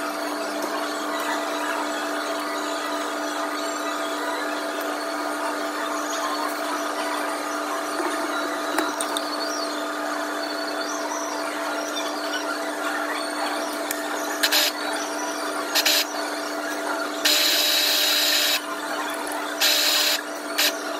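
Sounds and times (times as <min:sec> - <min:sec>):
coffee grinder motor humming: 0:14.4 - 0:14.8, 0:15.7 - 0:16.1, 0:17.2 - 0:18.7, 0:19.6 - 0:20.9.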